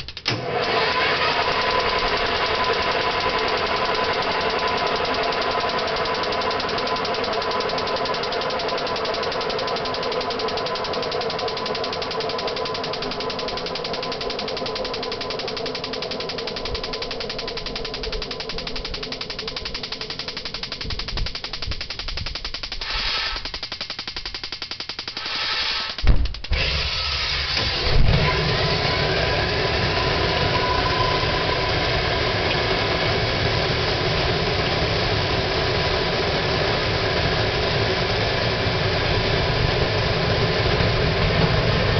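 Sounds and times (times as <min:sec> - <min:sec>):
turbojet engine running: 0:00.0 - 0:41.9.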